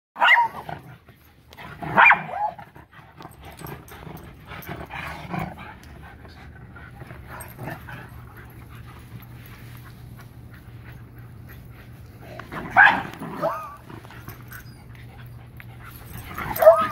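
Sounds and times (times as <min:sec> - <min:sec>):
dog barking: 0:00.2 - 0:00.6, 0:02.0 - 0:02.6, 0:12.7 - 0:13.8, 0:16.5 - 0:16.9
dogs yipping: 0:00.2 - 0:00.7, 0:01.9 - 0:02.7, 0:12.6 - 0:16.9
dogs panting: 0:00.7 - 0:16.9.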